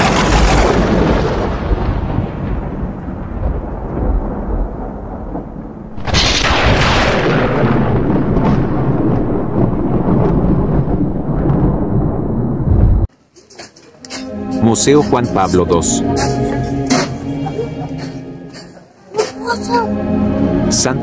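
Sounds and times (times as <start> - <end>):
thunder-like rumble: 0.0 - 13.1
sudden loud rush: 5.8 - 13.1.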